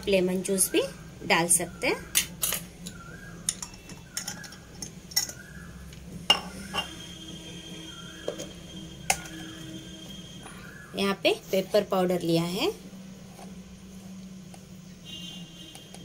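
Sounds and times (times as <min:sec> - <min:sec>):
spoon clinking steel bowls: 0:02.1 - 0:05.5, 0:06.3 - 0:07.1, 0:08.2 - 0:09.7.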